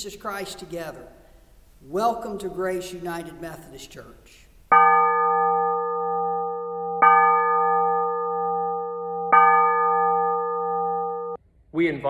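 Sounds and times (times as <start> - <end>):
bell tolling: 4.7 - 11.4.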